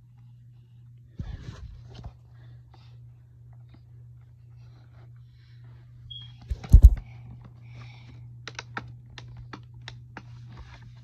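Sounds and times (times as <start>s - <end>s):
heavy thumps: 6.5s - 7.0s
plastic clicking and tapping: 8.4s - 10.3s.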